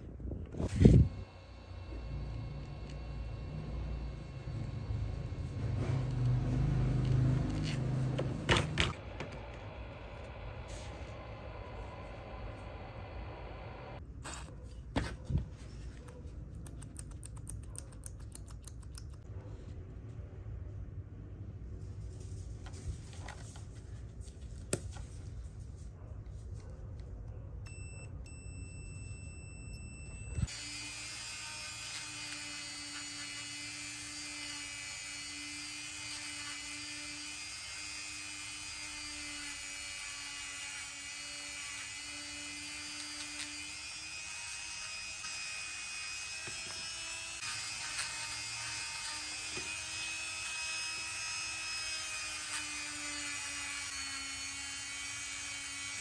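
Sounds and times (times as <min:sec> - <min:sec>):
rotary tool grinding metal: 0:30.4 - 0:56.0.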